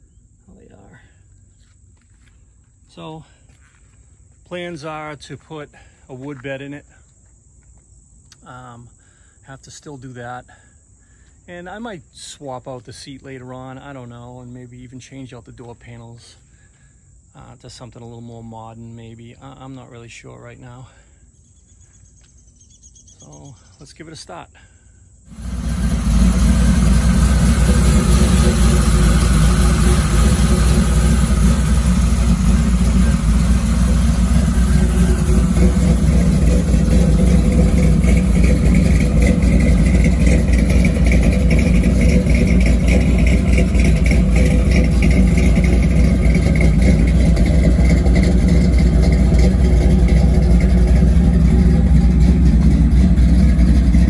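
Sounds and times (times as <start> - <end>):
car engine idling: 25.3 - 54.0.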